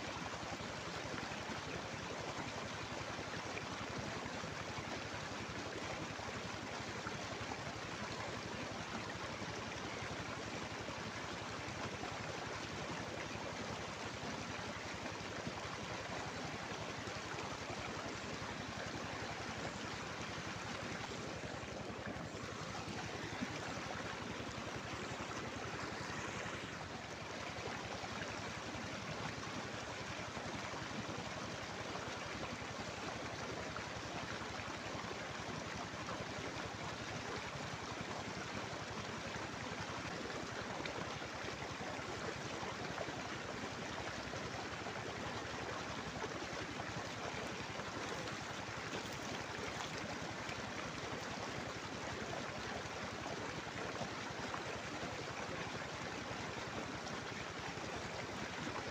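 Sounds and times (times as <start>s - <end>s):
river water rushing: 20.0s - 28.9s.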